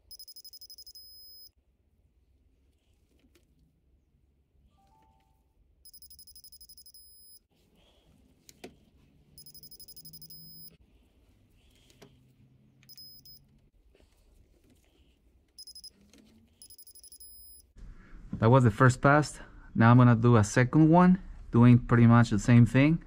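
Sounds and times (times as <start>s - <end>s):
torque wrench beeping: 0.0s - 1.5s, 5.9s - 7.4s, 9.4s - 10.7s, 12.9s - 13.4s, 15.6s - 15.9s, 16.6s - 17.6s.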